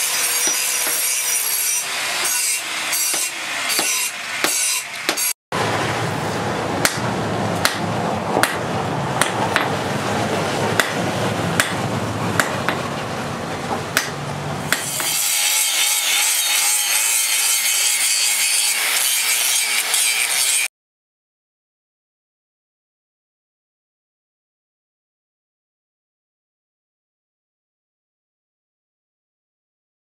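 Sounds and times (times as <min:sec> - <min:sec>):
angle grinder grinding steel: 0:00.0 - 0:05.4, 0:14.7 - 0:20.7
hammer striking hot metal on anvil: 0:00.0 - 0:05.4, 0:06.8 - 0:09.8, 0:10.8 - 0:12.8, 0:13.9 - 0:20.6.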